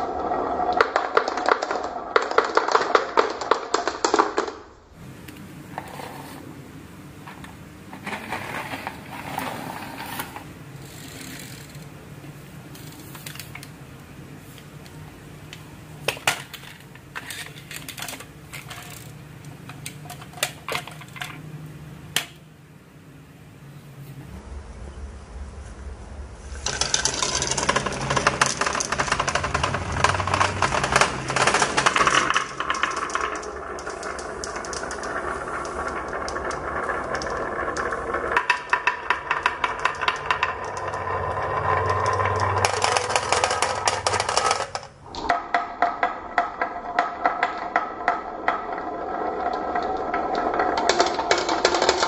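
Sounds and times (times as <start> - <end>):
marbles clattering down marble run: 0.0 - 4.7, 7.4 - 11.8, 16.1 - 21.6, 26.5 - 52.0.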